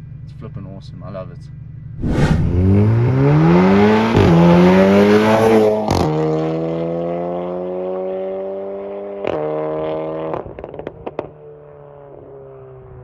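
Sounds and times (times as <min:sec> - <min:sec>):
car engine accelerating: 0:01.9 - 0:11.3.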